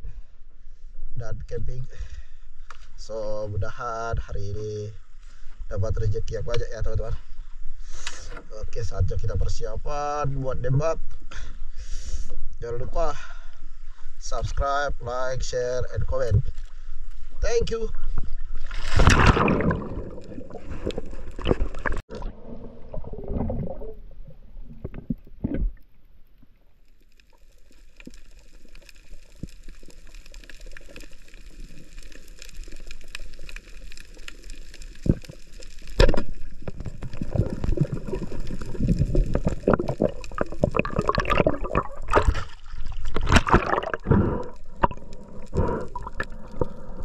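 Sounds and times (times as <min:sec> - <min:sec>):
water sloshing and gurgling: 0:15.9 - 0:47.0
water splashing: 0:18.3 - 0:25.9, 0:26.9 - 0:47.0.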